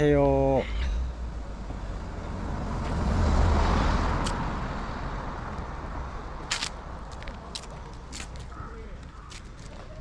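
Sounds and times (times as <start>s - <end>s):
car passing: 1.1s - 7.1s.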